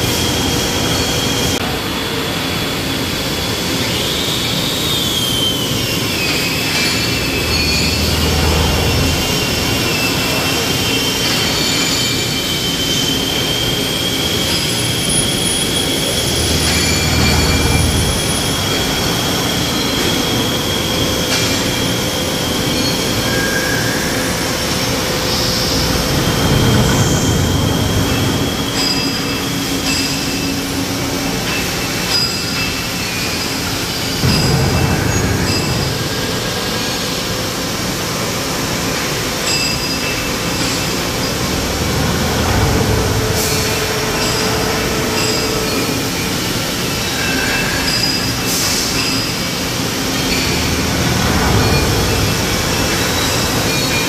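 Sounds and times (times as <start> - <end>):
machine-shop din: 0.0 - 54.0
high whining tones: 4.8 - 31.9, 39.5 - 54.0
steady hum: 6.2 - 10.8, 15.1 - 19.8, 24.6 - 29.9, 40.4 - 46.9
short low rush: 7.2 - 10.3.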